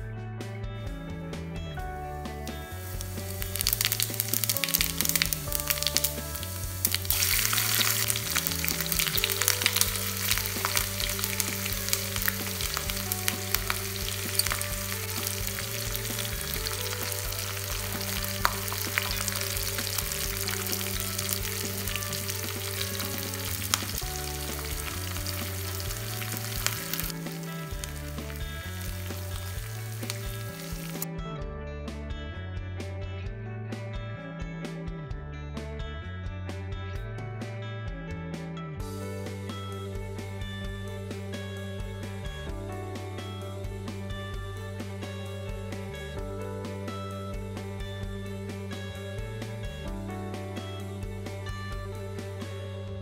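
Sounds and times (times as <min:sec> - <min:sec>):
background music: 0:00.0 - 0:53.0
spices sizzling in frying pan: 0:02.8 - 0:31.0.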